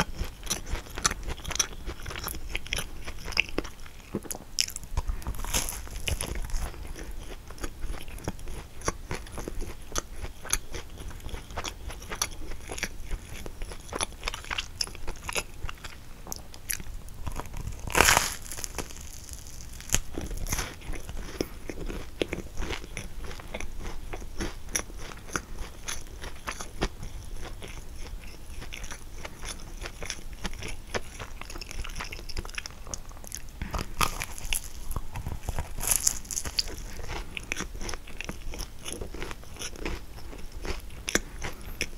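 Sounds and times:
chewing: 0.0s - 41.9s
crisp bites into pastry: 5.3s - 6.8s, 17.3s - 20.8s, 33.6s - 37.0s.

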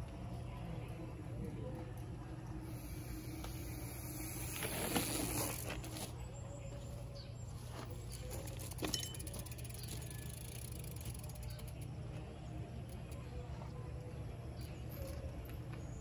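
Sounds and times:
bike tyres rumbling on dirt: 3.0s - 6.2s.

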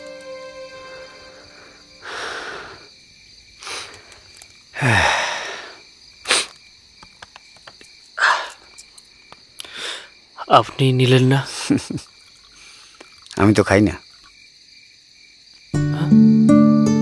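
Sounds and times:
background music: 0.0s - 2.7s, 15.8s - 17.0s
crickets chirping: 0.0s - 17.0s.

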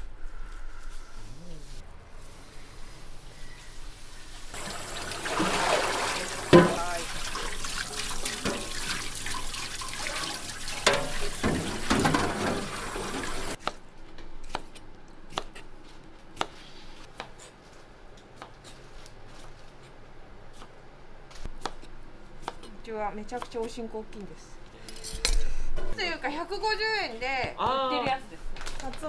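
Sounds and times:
tap water running into sink: 4.6s - 13.6s.

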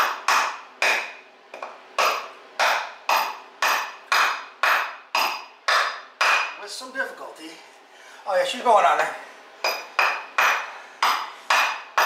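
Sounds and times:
wood block knocking on steel: 0.0s - 6.6s.

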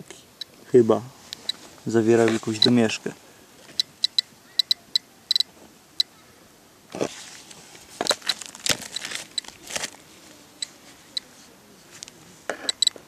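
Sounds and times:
dosimeter chirping clicks: 3.8s - 6.1s, 12.7s - 13.0s
stones crunching and clattering: 8.0s - 10.0s.

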